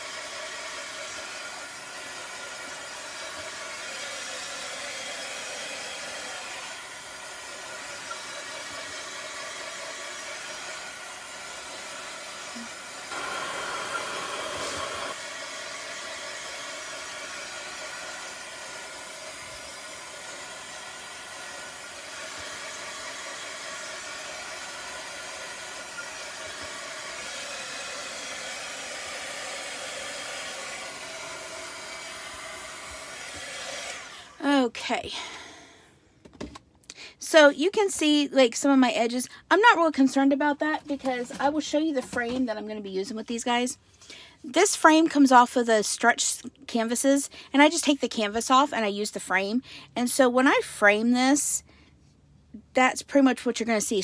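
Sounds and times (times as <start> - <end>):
hair dryer running: 0.0 - 35.9.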